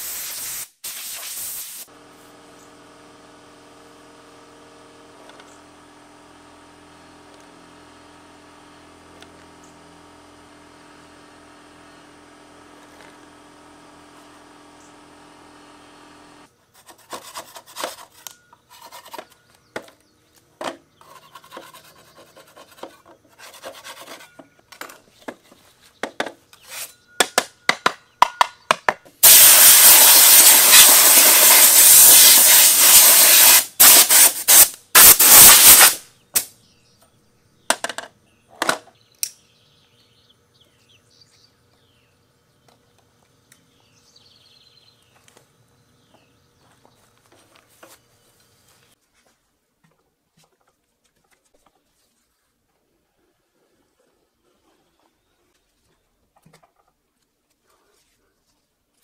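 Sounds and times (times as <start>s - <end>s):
compressed-air blow gun hissing: 0.0s - 1.9s, 29.2s - 36.5s.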